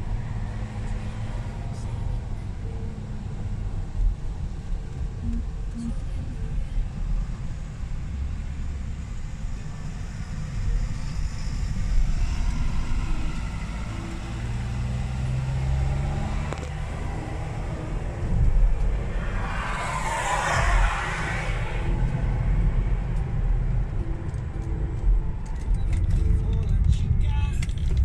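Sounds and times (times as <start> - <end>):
car cabin road rumble: 0.0 - 28.0
engine hum: 0.0 - 28.0
passing vehicle rush: 7.9 - 25.4.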